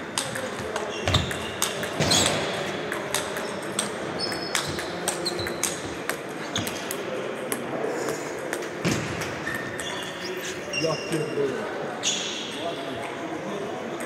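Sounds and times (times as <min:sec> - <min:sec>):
table tennis balls clicking: 0:00.0 - 0:10.2
distant table tennis rallies: 0:00.0 - 0:10.4.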